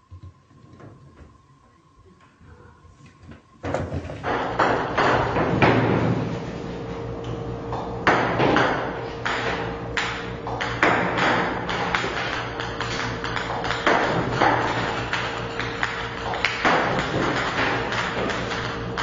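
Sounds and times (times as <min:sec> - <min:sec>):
steady machine hum: 0:00.0 - 0:19.0
ping-pong balls bouncing on table: 0:07.7 - 0:19.0.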